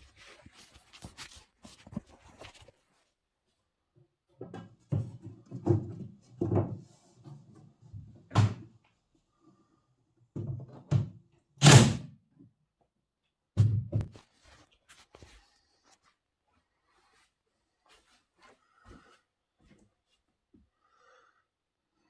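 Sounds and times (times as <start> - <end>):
nail gun shots: 11.6 - 12.1.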